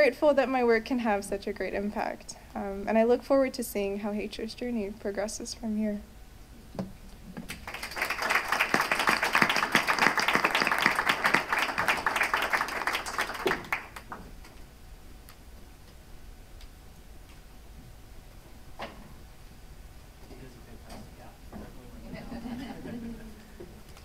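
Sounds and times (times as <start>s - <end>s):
audience applause: 7.6s - 14.2s.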